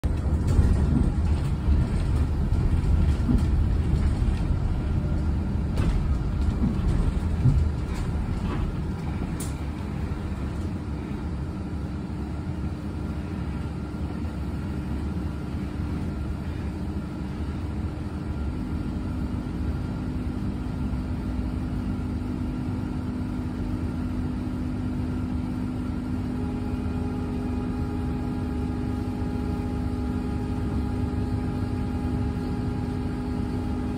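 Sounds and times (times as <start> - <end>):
knocks and rattles: 0.0 - 9.6
bus cabin rumble: 0.0 - 33.9
steady humming tones: 0.0 - 33.9.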